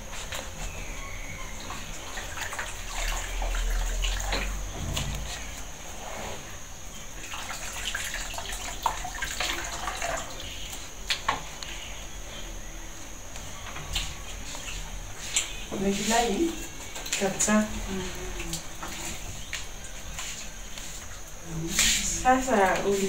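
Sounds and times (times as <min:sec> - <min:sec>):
water splashing into basin: 0:01.7 - 0:05.6, 0:07.2 - 0:11.2.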